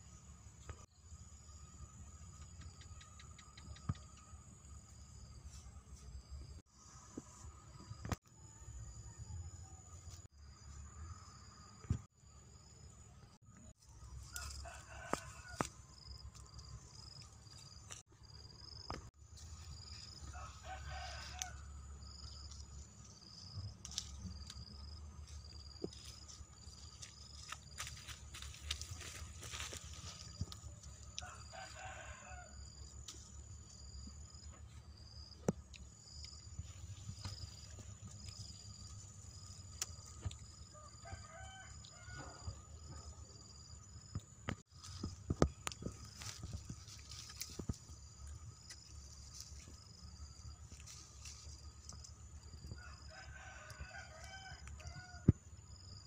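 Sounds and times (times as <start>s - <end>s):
rooster crowing: 14.2s - 15.8s, 20.1s - 22.2s, 31.1s - 33.0s, 40.6s - 43.1s, 52.6s - 55.3s.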